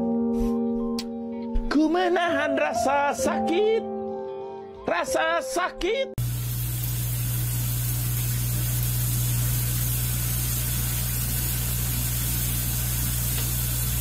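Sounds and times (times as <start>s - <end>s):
shower water spray hissing: 6.2s - 14.0s.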